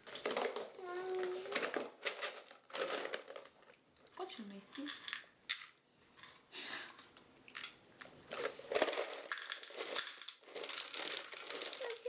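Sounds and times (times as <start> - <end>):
nuts clattering into metal dish: 4.7 - 5.8, 7.6 - 12.0.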